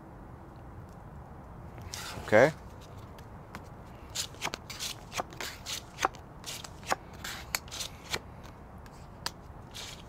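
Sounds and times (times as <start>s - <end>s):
cards swishing: 9.2s - 10.0s.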